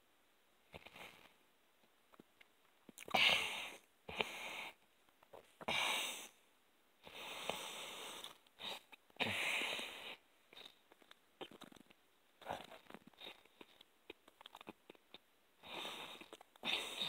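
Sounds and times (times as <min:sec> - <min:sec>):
heavy breathing through nose: 0:07.0 - 0:10.8, 0:15.6 - 0:17.0.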